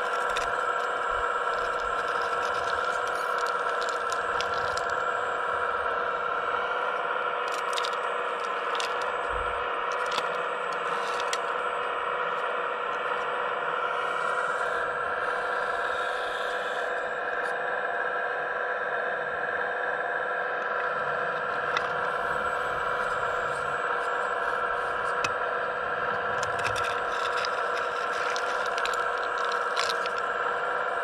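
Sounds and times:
hydraulic pump whining: 20.4 - 31.0
bucket scraping rock and rubble: 26.4 - 30.2.

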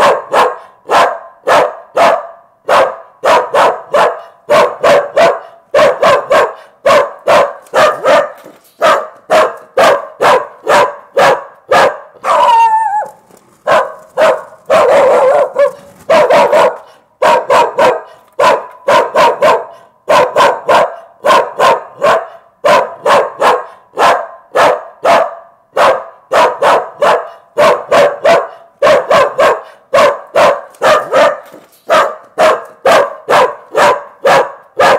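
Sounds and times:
dog barking loudly: 0.0 - 34.9
dog whining: 12.2 - 16.8.

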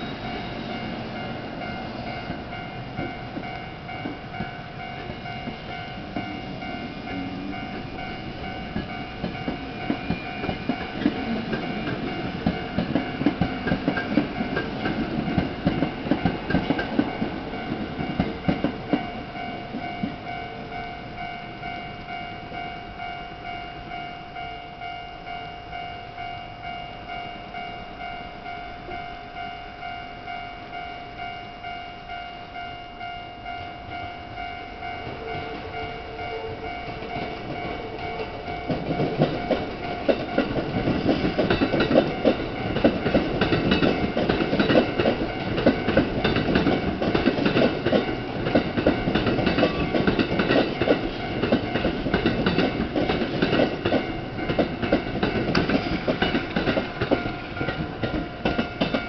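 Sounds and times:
train wheels clattering over rails: 0.0 - 20.3, 36.6 - 59.0
level crossing warning bell: 0.0 - 59.0.

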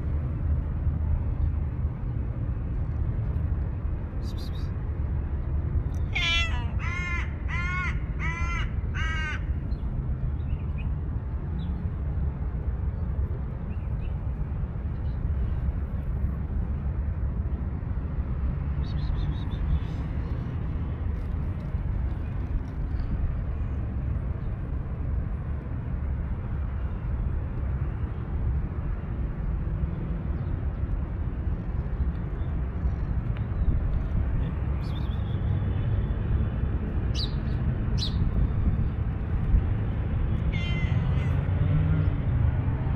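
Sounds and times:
crow cawing: 6.2 - 9.5.

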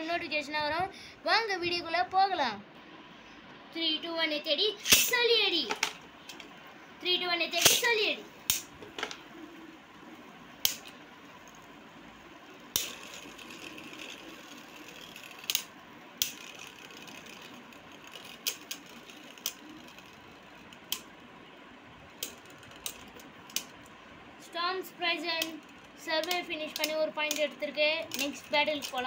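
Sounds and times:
spinning tops whirring: 4.7 - 6.6, 7.2 - 24.1, 24.7 - 29.0
spinning tops clacking together: 4.8 - 6.5, 7.5 - 9.2, 10.6 - 11.7, 12.6 - 21.2, 22.1 - 23.9, 25.2 - 29.0.

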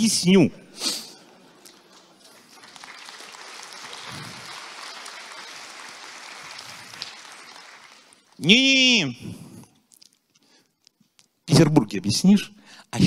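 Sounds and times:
audience applauding: 1.6 - 8.6.

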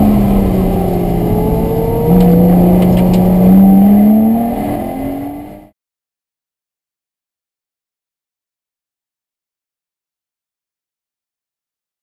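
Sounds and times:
car engine revving under load: 0.0 - 5.7.

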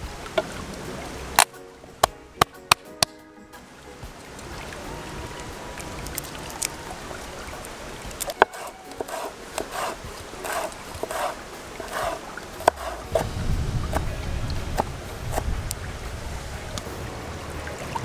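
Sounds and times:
knife clicking on wooden board: 8.2 - 13.3.

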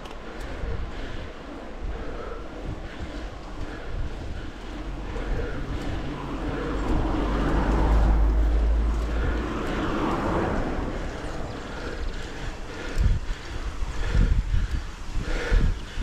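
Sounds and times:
car passing by: 4.8 - 13.0.

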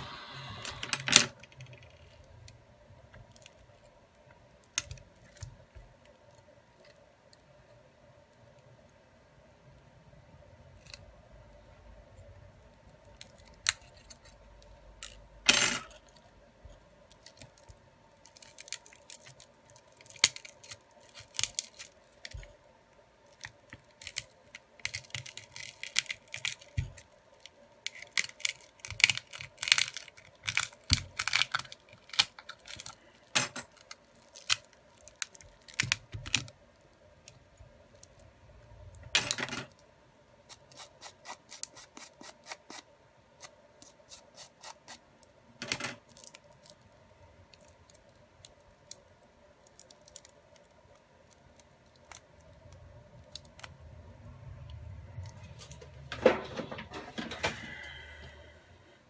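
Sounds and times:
wire tool scraping and tearing glue: 40.5 - 45.0.

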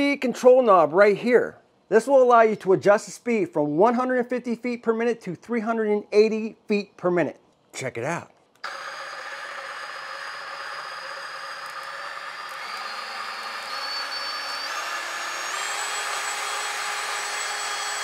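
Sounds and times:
bandsaw motor and blade whine: 8.6 - 18.0.

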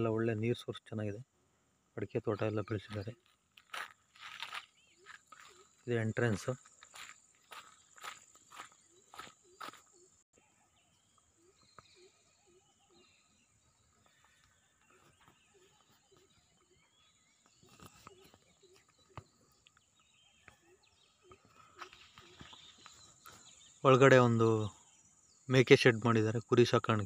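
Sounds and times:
faint footsteps on dirt: 2.3 - 10.2, 13.8 - 23.7.

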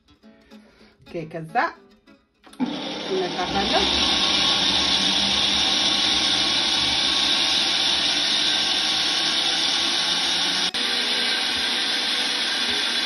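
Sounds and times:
blender running: 2.6 - 13.0.

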